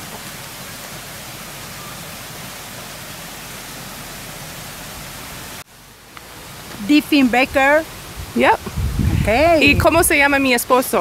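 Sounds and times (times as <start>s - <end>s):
river water rushing: 0.0s - 8.6s.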